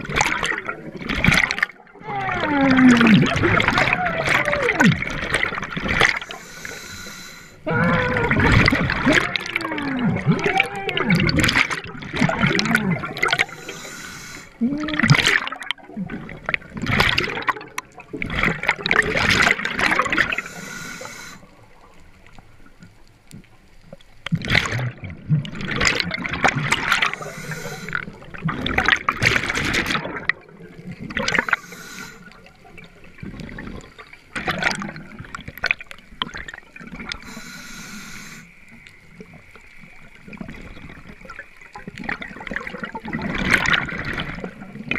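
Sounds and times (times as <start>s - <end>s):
underwater breathing bubbles gurgling: 0.0s - 23.5s, 24.2s - 44.9s
faint hiss: 6.0s - 7.7s, 13.0s - 14.8s, 20.1s - 24.0s, 26.8s - 28.3s, 30.8s - 33.0s, 37.0s - 41.7s.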